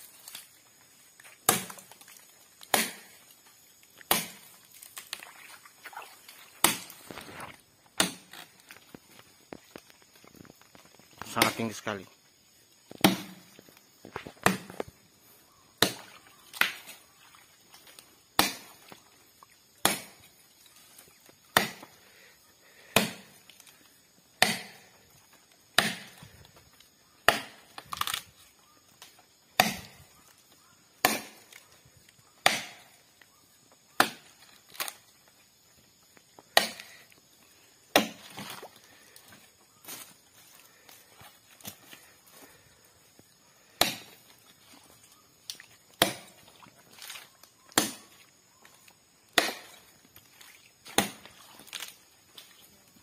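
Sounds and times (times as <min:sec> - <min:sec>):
machete chopping palm trunk: 0:01.3 - 0:03.3, 0:03.9 - 0:05.2, 0:06.6 - 0:08.8, 0:11.2 - 0:11.8, 0:12.9 - 0:13.5, 0:14.2 - 0:14.8, 0:15.8 - 0:17.0, 0:18.2 - 0:18.9, 0:19.6 - 0:20.3, 0:21.4 - 0:22.0, 0:22.8 - 0:23.5, 0:24.3 - 0:24.9, 0:25.6 - 0:26.3, 0:27.2 - 0:28.2, 0:29.0 - 0:30.1, 0:30.9 - 0:31.6, 0:32.3 - 0:33.0, 0:33.9 - 0:35.0, 0:36.4 - 0:37.1, 0:37.8 - 0:38.6, 0:43.6 - 0:44.4, 0:45.4 - 0:48.2, 0:49.2 - 0:49.9, 0:50.8 - 0:52.1.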